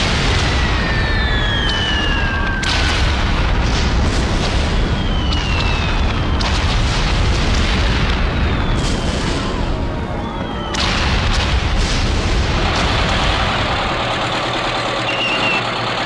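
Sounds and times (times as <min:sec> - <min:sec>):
rumble of explosions: 0:00.0 - 0:16.0
sharp blasts: 0:00.0 - 0:16.0
whistles of falling shells: 0:00.3 - 0:03.1, 0:04.6 - 0:06.8, 0:08.2 - 0:09.5, 0:14.9 - 0:15.8.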